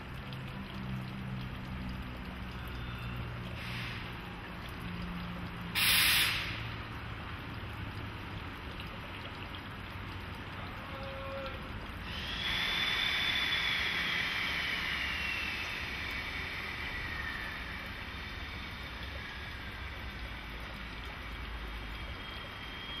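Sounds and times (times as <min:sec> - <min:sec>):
air hiss burst: 0:05.8 - 0:06.6
whir with falling whine: 0:12.1 - 0:23.0.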